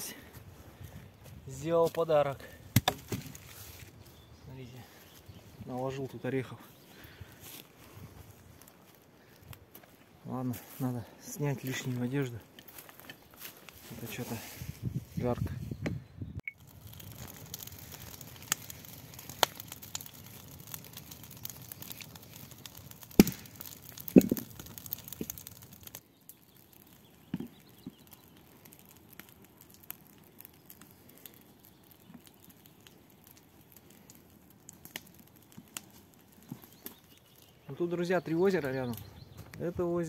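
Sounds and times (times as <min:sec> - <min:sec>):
campfire crackling and popping: 0:00.0 - 0:14.8, 0:16.5 - 0:40.0.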